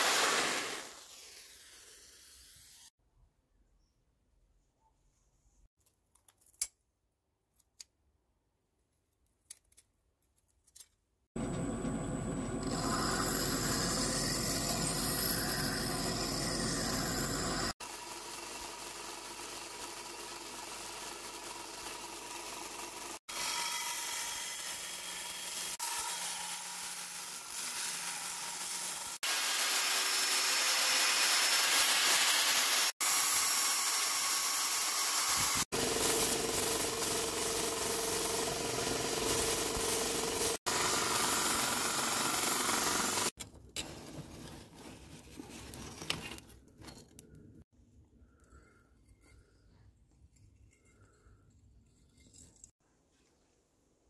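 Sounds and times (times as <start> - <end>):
belt grinder grinding steel: 12.4 - 43.4.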